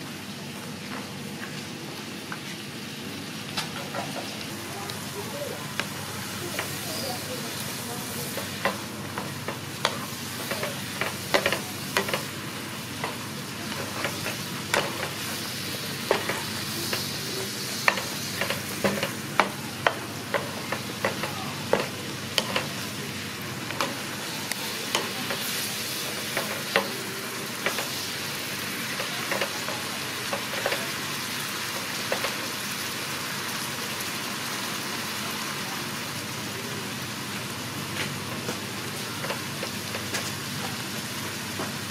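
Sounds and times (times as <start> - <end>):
meat and vegetables sizzling: 0.0 - 41.9
spatula knocking and scraping pan: 8.3 - 12.3, 13.0 - 15.2, 16.0 - 17.2, 17.8 - 22.8.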